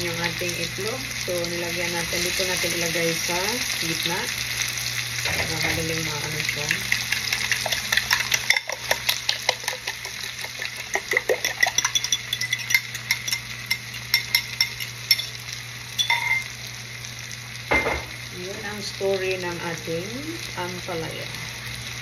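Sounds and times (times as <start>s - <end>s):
faint sizzle: 0.0s - 22.0s
utensil scraping bowl: 6.7s - 14.8s
fork beating eggs in glass bowl: 6.8s - 15.3s.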